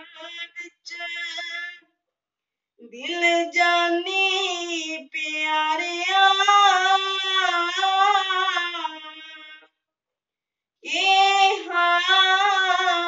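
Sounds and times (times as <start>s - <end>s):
boy singing a hymn: 0.0s - 1.8s, 3.0s - 9.6s, 10.9s - 13.0s.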